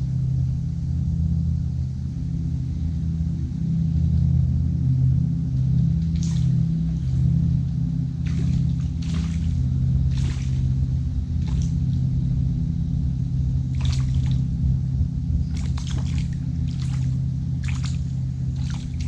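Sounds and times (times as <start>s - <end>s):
fish splashing at water surface: 6.2s - 6.6s, 8.3s - 10.8s, 11.4s - 11.8s, 13.7s - 14.5s, 15.5s - 19.0s.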